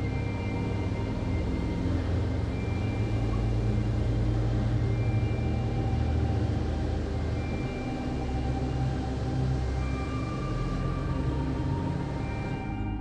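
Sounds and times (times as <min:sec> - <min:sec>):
steady low drone: 0:00.0 - 0:13.0.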